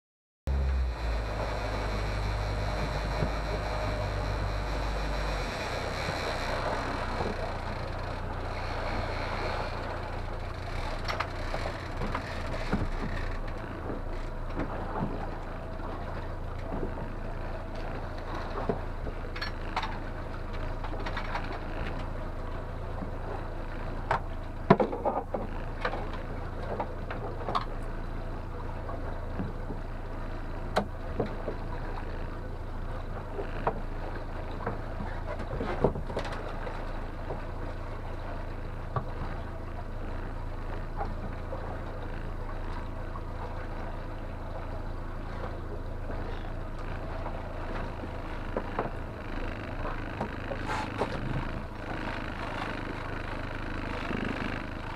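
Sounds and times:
outboard motor running: 0.5s - 54.9s
sharp knocks and clatters: 10.9s - 15.2s.

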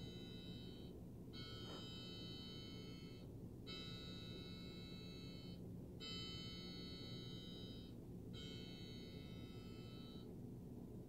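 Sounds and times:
electronic clock chime: 0.0s - 10.3s.

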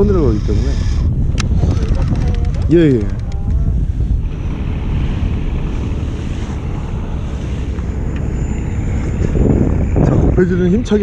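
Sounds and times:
wind on microphone: 0.0s - 11.0s
waves washing: 4.2s - 10.0s.

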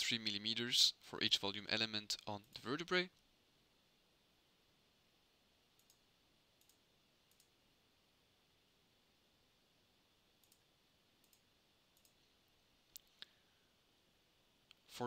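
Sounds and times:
faint computer mouse clicks: 5.8s - 6.0s, 6.6s - 7.5s, 10.4s - 12.3s.

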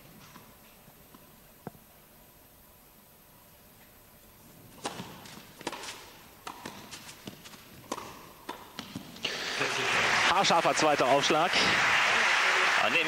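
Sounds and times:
tennis racket strikes: 4.8s - 9.1s
tennis ball bouncing: 4.8s - 9.2s.

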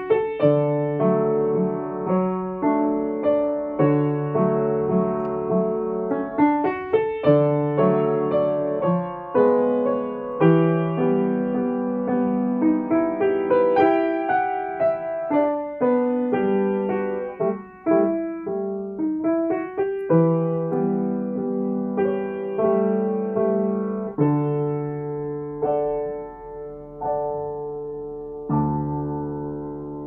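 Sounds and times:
upright piano melody: 0.0s - 30.0s.

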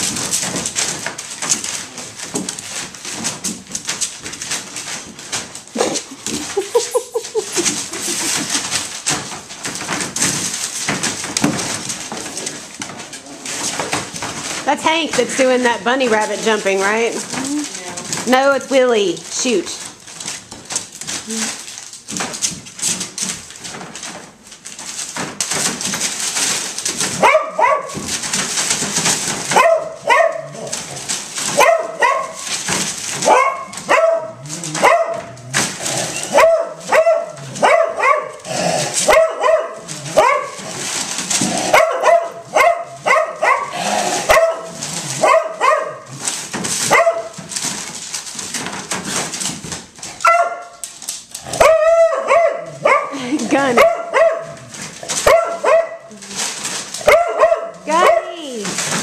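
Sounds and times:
newspaper crinkling under paws: 0.0s - 59.0s
puppies yipping and barking: 5.8s - 9.1s, 31.4s - 35.3s.

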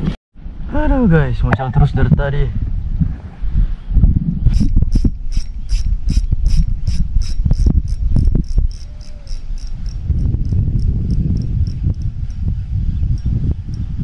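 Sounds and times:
wind rumble on microphone: 0.0s - 14.0s
fishing reel clicking: 4.5s - 10.0s.

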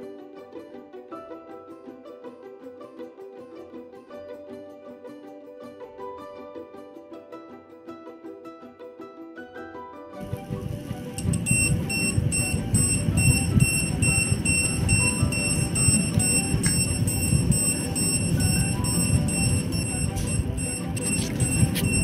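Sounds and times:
low rumbling noise: 10.2s - 22.0s
radiation detector beeping rapidly: 10.2s - 22.0s.

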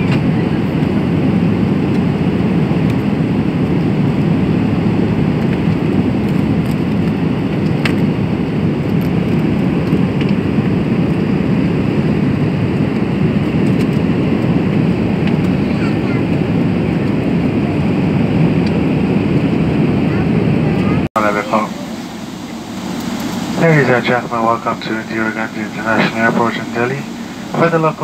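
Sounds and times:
airplane cabin engine rush: 0.0s - 28.0s.

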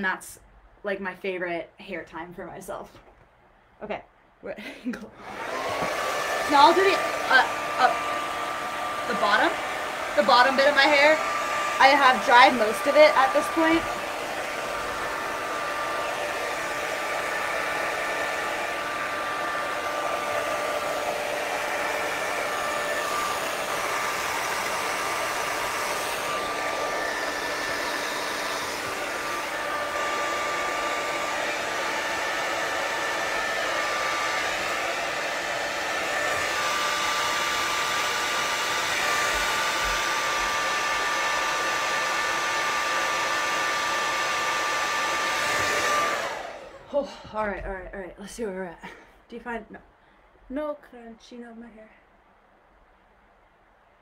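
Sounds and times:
hair dryer running: 4.6s - 47.8s.

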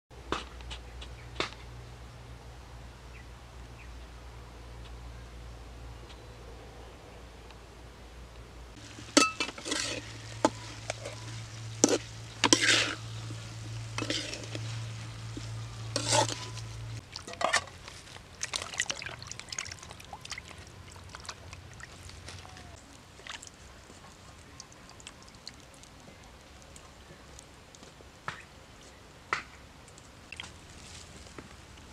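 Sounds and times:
metal spatula scraping a wok: 8.9s - 17.8s
hands splashing in water: 17.1s - 22.3s.

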